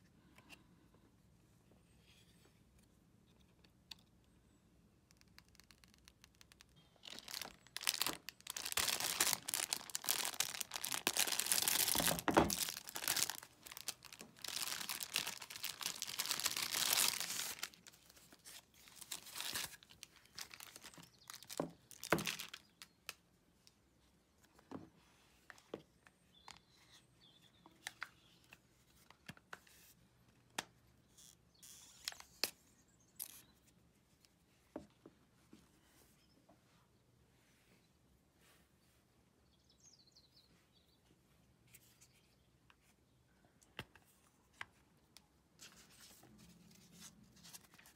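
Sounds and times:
plastic film peeling and crinkling: 5.1s - 23.2s
plastic packaging rustling: 5.6s - 23.0s.

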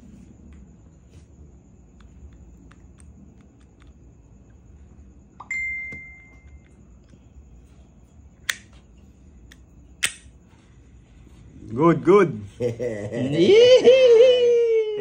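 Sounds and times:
bright ding: 5.4s - 6.6s.

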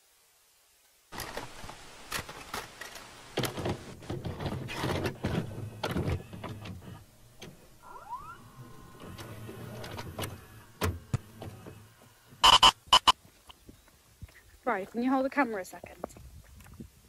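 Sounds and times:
glitchy static crackles: 0.0s - 6.2s, 6.9s - 13.2s.

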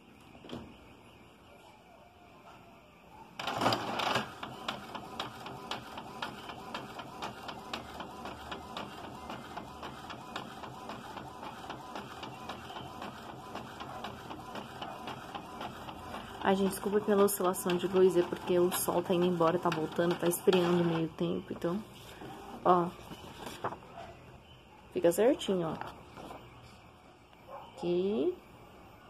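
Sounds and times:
printer clicking while printing: 3.4s - 22.6s
printer starting up: 3.4s - 22.9s.

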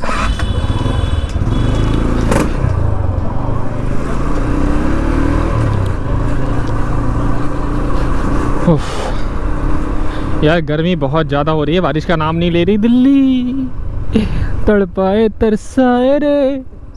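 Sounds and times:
motorcycle engine running: 0.0s - 10.4s
road noise: 0.0s - 16.9s.

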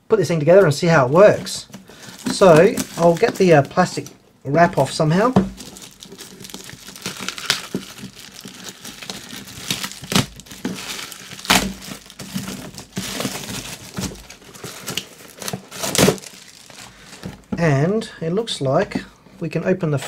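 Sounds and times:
plastic wrap crinkling and tearing: 1.4s - 4.1s, 4.7s - 17.5s.

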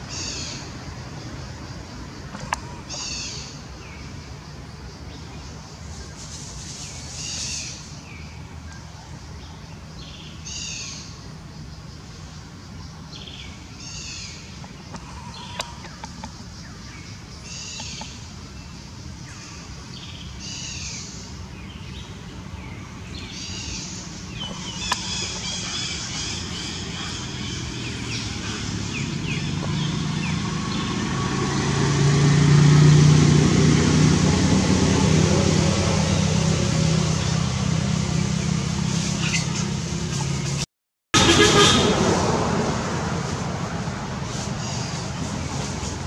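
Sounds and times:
vehicle engine hum: 0.0s - 46.0s
bird calling: 13.8s - 18.2s, 23.2s - 31.0s.

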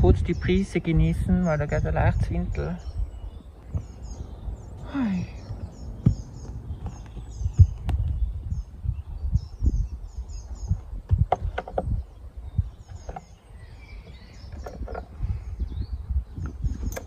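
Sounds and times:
small bird chirping: 0.0s - 17.0s
wind buffeting microphone: 0.0s - 17.0s
footsteps on a trail: 5.3s - 8.3s.

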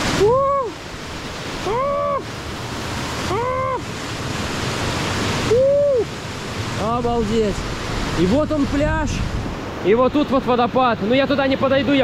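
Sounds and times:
surf: 0.0s - 12.0s
waterfall rushing: 0.0s - 12.0s.

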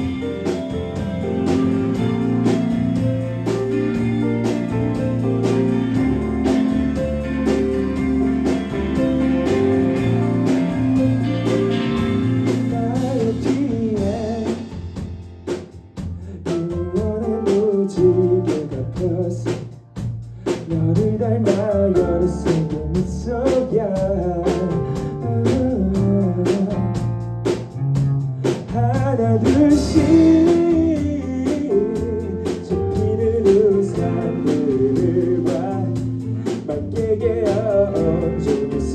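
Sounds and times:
rock band playing: 0.0s - 38.9s
person singing lead vocal: 12.5s - 14.9s, 16.4s - 19.7s, 20.5s - 27.1s, 28.6s - 38.9s.

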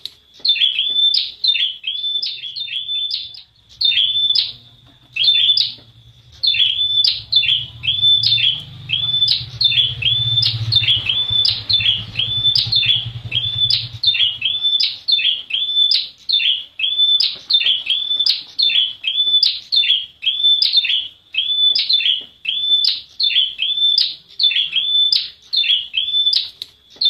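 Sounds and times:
bird chirping: 0.0s - 27.0s
steady low hum: 2.5s - 15.5s.

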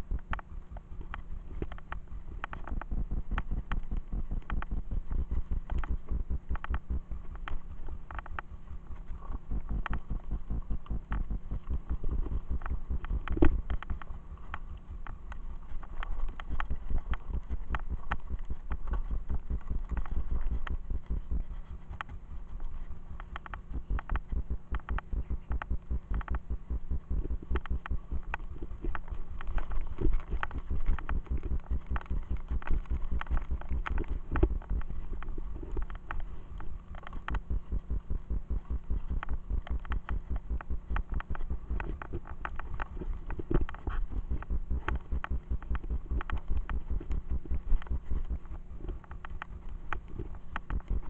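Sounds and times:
bike clicks and rattles: 9.2s - 51.0s.

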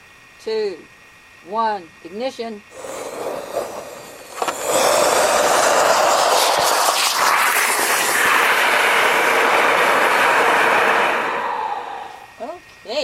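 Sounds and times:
rocket motor fizz: 2.7s - 12.5s
rocket motor rushing hiss: 2.7s - 12.5s.

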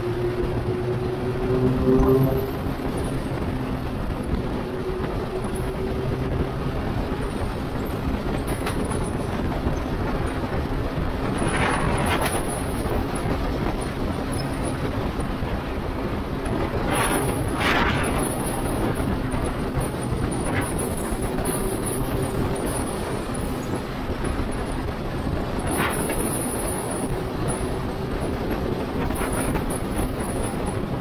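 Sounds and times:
motorcycle engine hum: 0.0s - 31.0s
road noise: 0.0s - 31.0s
wind rush: 0.0s - 31.0s.

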